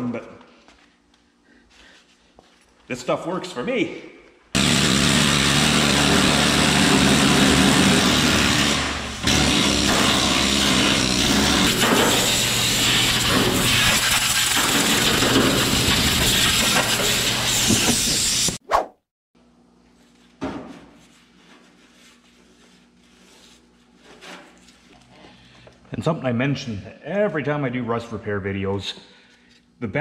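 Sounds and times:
needle scaler hammering rust: 0:04.6 - 0:18.6.

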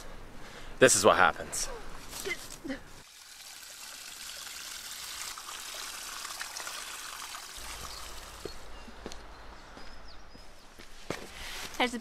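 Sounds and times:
water splashing into pool: 0:03.0 - 0:08.4.

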